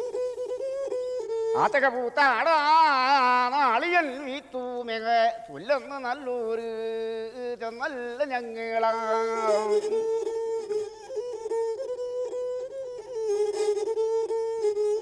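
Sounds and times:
bowed string instrument: 0.0s - 15.0s.

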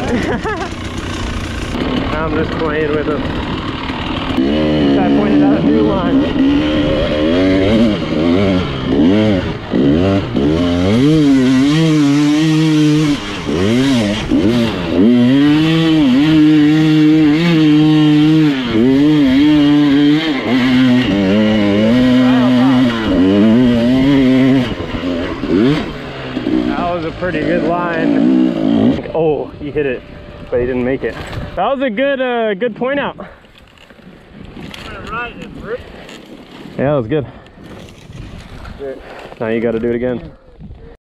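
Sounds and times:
dirt bike engine revving: 0.0s - 40.0s.

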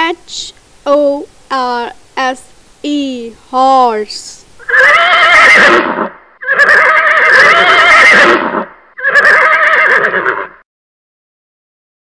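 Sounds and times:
horse neighing: 4.6s - 10.6s.

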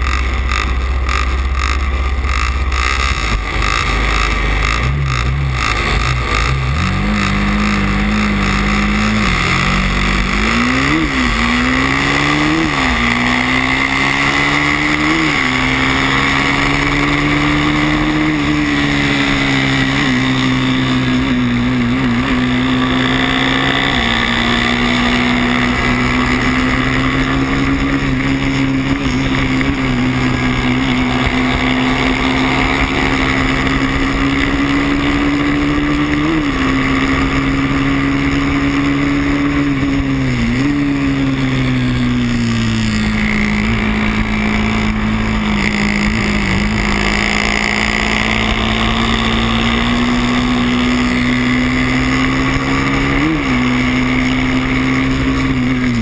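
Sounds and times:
racing motorcycle engine: 0.0s - 56.0s.

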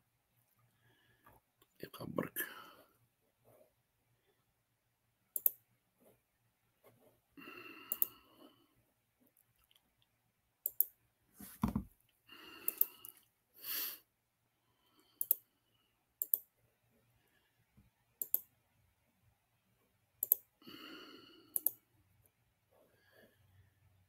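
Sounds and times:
soft breathing: 0.6s - 1.5s, 12.3s - 16.1s, 22.7s - 24.0s
computer mouse clicks: 5.3s - 5.6s, 7.9s - 8.2s, 10.6s - 11.0s, 12.6s - 13.2s, 15.2s - 15.4s, 16.2s - 16.5s, 18.2s - 18.5s, 20.2s - 20.5s, 21.5s - 21.8s.

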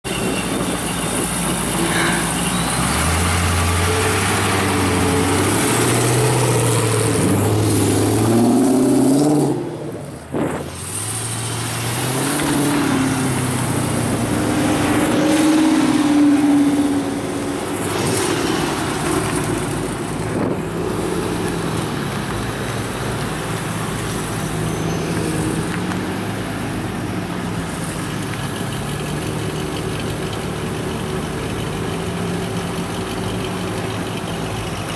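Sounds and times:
car engines revving: 0.1s - 34.9s
car engine idling: 25.6s - 34.9s.

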